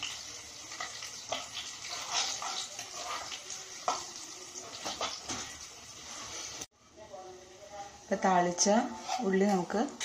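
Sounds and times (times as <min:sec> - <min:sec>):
vegetables sizzling in hot oil: 0:00.0 - 0:06.8.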